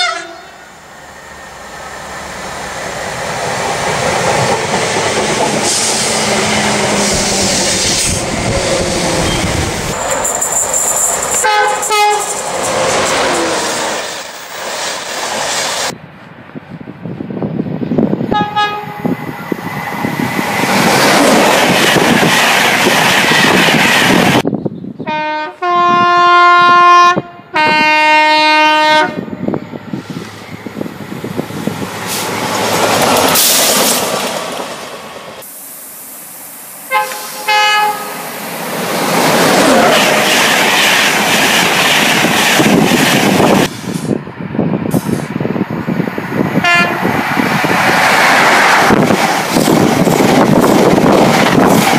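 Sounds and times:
train horn blasts: 0.0s - 0.8s, 11.4s - 12.4s, 18.3s - 19.5s, 25.0s - 29.6s, 36.9s - 38.4s, 46.6s - 47.1s
trains rushing and wheels clattering: 0.0s - 24.6s, 27.2s - 51.9s.

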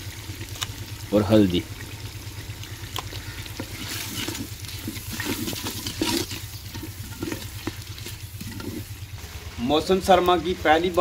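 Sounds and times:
soft sizzle: 0.0s - 11.0s
wooden spoon scraping a pot: 3.6s - 8.9s.

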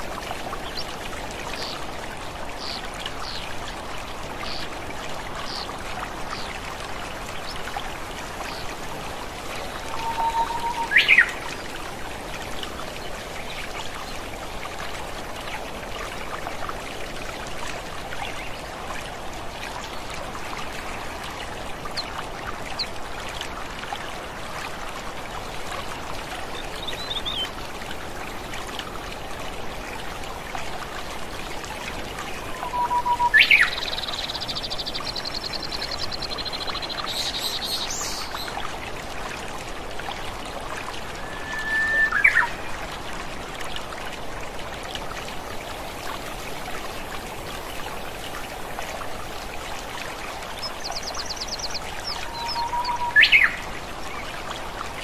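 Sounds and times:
waterfall and stream rushing: 0.0s - 55.0s
birds calling: 41.2s - 42.6s.

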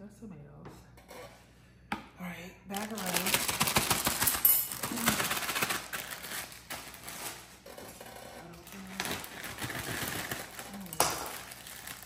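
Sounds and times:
plastic bag crinkling: 2.7s - 12.0s.

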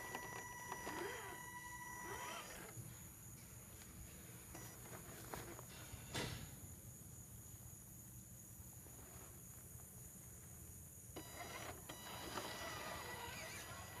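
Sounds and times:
electric motor whine: 0.0s - 2.8s, 11.2s - 14.0s.

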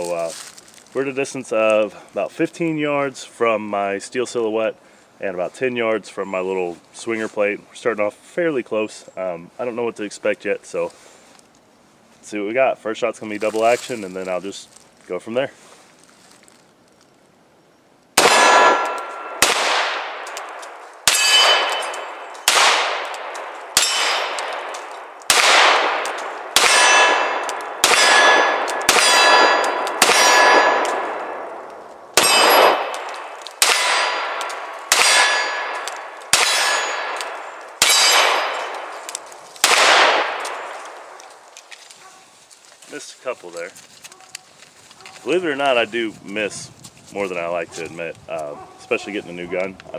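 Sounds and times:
pistol shots: 18.2s - 41.2s
steel targets ringing: 21.1s - 22.7s, 23.8s - 24.5s, 26.6s - 31.2s, 32.2s - 32.9s, 33.6s - 39.0s.

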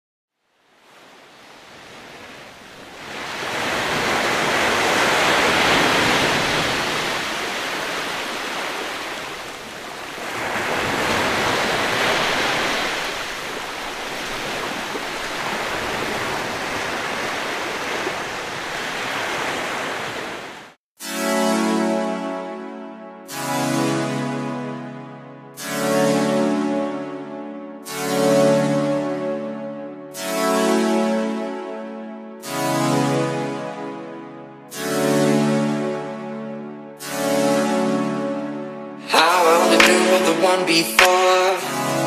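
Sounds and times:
ocean surf washing on sand: 0.8s - 20.8s, 39.1s - 41.3s
keyboard music: 21.0s - 42.0s.

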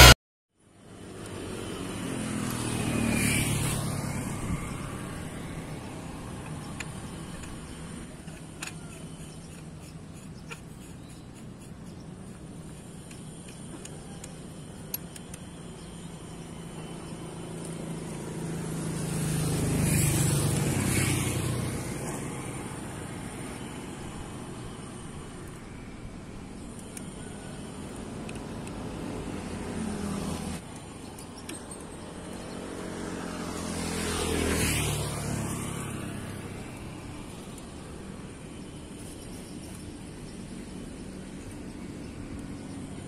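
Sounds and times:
low road rumble: 0.0s - 43.0s
vehicle passing: 1.0s - 8.2s, 15.9s - 25.3s, 32.0s - 39.0s
small clicks: 6.4s - 16.0s, 26.6s - 27.3s.

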